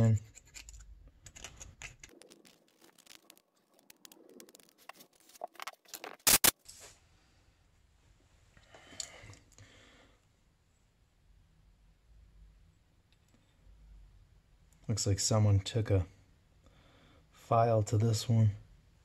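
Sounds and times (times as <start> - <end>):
parts rustling: 0.0 - 7.0.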